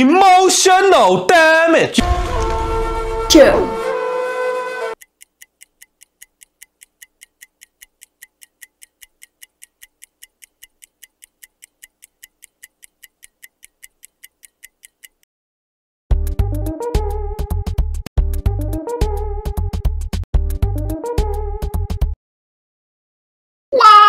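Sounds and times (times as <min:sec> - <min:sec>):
rapid clock ticking: 0:05.0 - 0:15.3.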